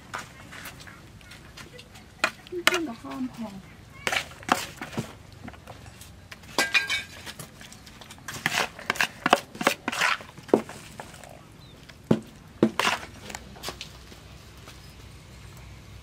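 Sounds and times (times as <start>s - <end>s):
metal utensils clinking on dishes: 6.5s - 7.2s.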